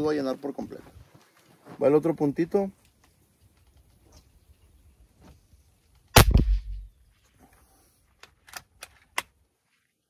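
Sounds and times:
air rifle shot: 0:06.2 - 0:06.9.

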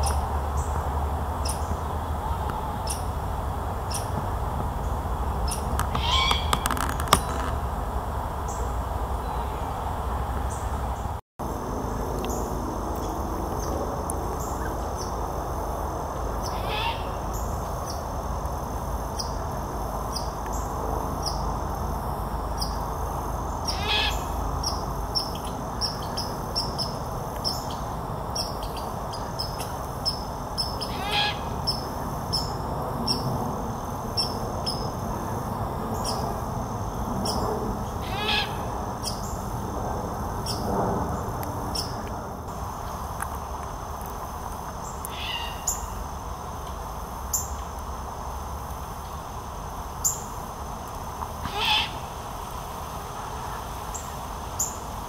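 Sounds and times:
owl raspy screeching call: 0:05.5 - 0:07.4, 0:16.4 - 0:17.5, 0:23.6 - 0:24.3, 0:30.8 - 0:31.5, 0:38.0 - 0:38.7, 0:45.1 - 0:45.9, 0:51.4 - 0:52.0.

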